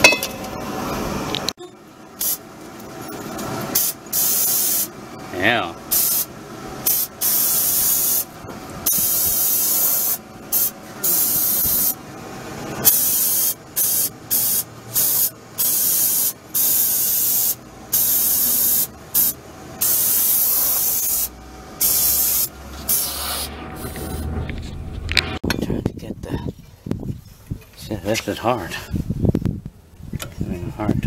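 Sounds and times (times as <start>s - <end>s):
aerosol spray hissing: 3.8s - 4.9s, 6.9s - 8.2s, 8.9s - 12.0s, 12.9s - 24.2s.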